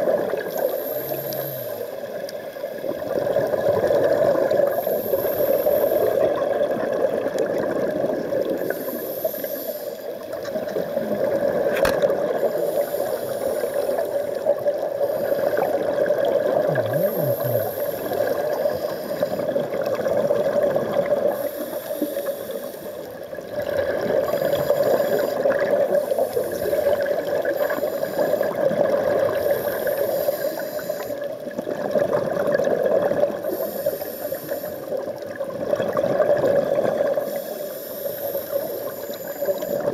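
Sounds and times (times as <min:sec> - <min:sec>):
bubbling exhaust underwater: 0:00.0 - 0:39.9
regulator hiss: 0:00.4 - 0:02.0, 0:04.7 - 0:06.3, 0:08.6 - 0:11.2, 0:12.4 - 0:14.4, 0:16.8 - 0:19.5, 0:21.3 - 0:23.1, 0:24.2 - 0:28.7, 0:29.3 - 0:31.3, 0:33.4 - 0:35.0, 0:37.2 - 0:39.9.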